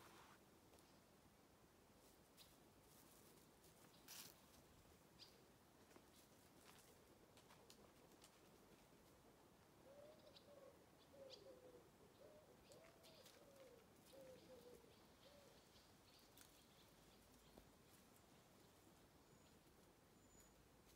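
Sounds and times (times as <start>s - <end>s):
pigeon cooing: 9.8s - 15.6s
faint high bird chirps: 9.8s - 20.9s.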